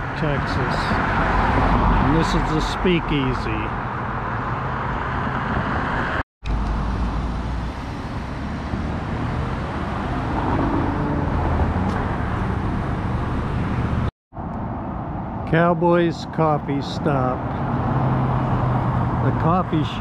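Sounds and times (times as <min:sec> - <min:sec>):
car road noise: 0:00.0 - 0:20.0.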